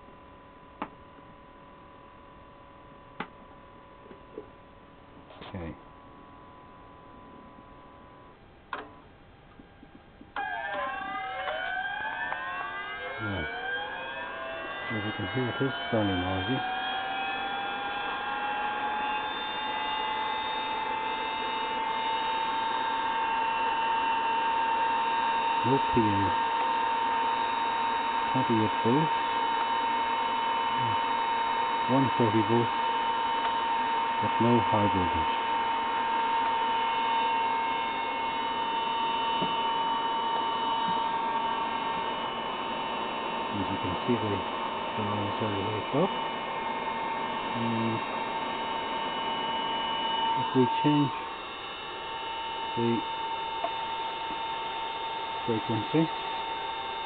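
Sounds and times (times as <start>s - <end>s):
constant high whine: 0.0s - 57.0s
cooling blowers whirring: 0.0s - 57.0s
cooling blowers rushing: 13.2s - 18.5s, 39.3s - 51.5s.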